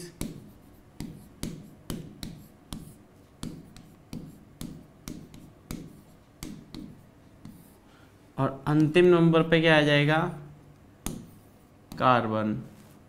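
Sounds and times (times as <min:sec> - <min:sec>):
stylus tapping on tablet: 0:00.1 - 0:07.7, 0:11.0 - 0:12.0.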